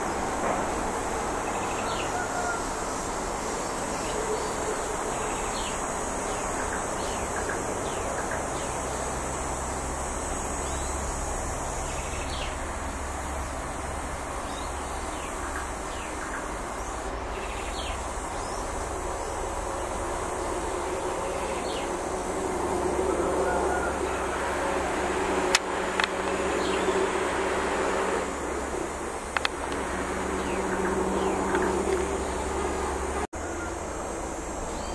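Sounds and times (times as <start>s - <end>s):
insect drone: 0.0s - 34.9s
birds chirping: 25.8s - 33.3s.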